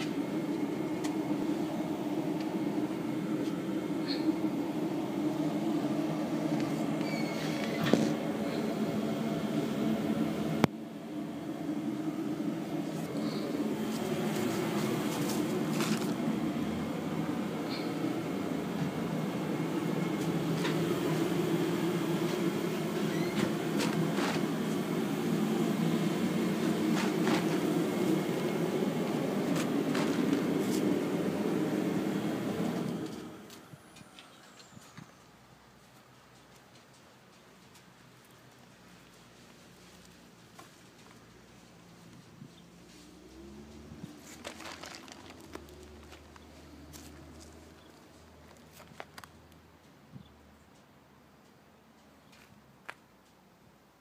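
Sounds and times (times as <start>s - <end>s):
mechanical drone: 0.0s - 34.8s.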